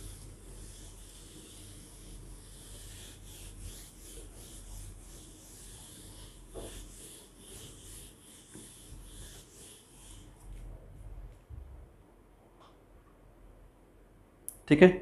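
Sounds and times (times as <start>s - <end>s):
eraser scrubbing on whiteboard: 0.0s - 11.1s.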